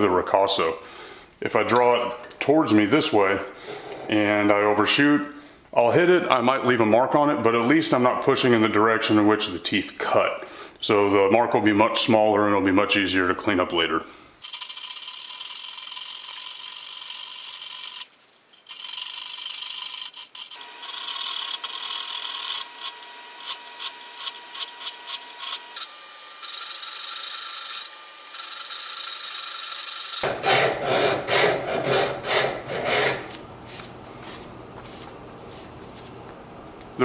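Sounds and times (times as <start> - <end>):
file rasping on steel: 18.7 - 33.3.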